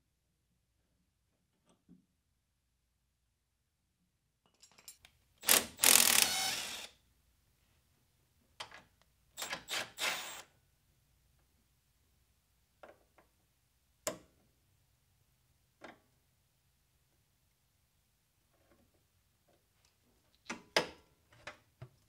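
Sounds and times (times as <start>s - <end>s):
cordless ratchet whirring: 5.4s - 6.9s.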